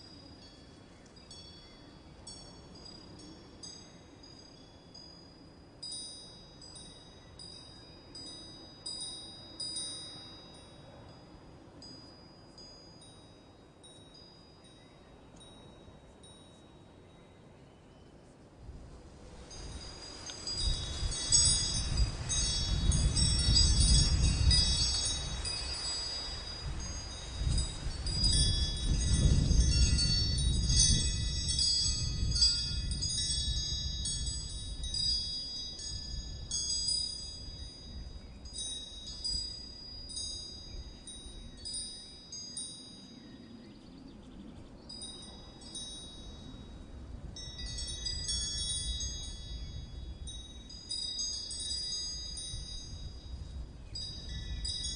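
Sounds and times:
wind chimes tinkling: 0.0 - 17.2, 19.3 - 43.8, 44.9 - 54.9.

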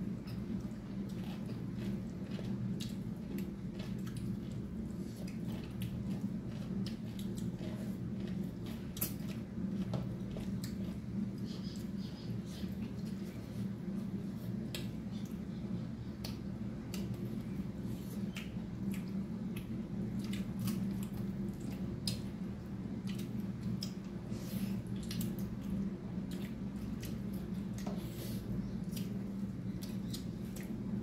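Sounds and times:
low steady hum: 0.0 - 31.0
wet chewing: 0.0 - 31.0
fingers squishing food: 0.1 - 24.2.

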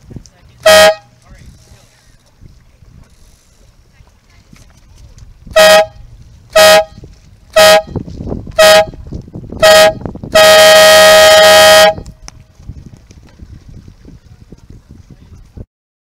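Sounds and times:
air horn blasts: 0.6 - 1.1, 5.5 - 8.0, 8.6 - 9.0, 9.6 - 12.1.

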